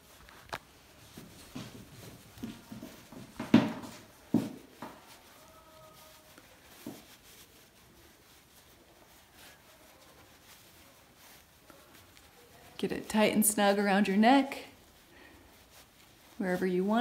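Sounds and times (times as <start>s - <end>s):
scarf rustling: 0.0s - 17.0s
soft knocks: 2.5s - 5.0s.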